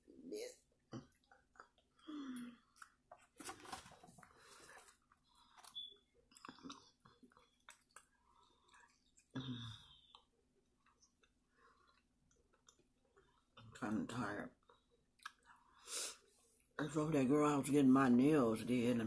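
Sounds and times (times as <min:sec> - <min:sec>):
wet chewing mouth sounds: 0:05.0 - 0:13.6.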